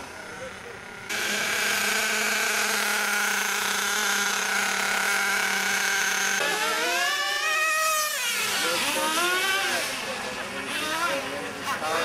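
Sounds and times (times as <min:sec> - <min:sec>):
toy car motor whining: 0:00.2 - 0:12.0.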